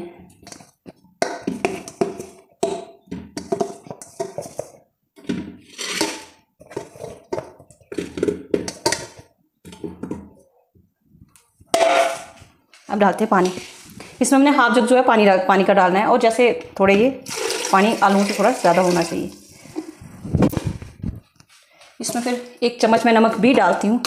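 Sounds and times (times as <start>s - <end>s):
potatoes clunking into metal pot: 0.3s - 10.4s, 11.7s - 12.4s.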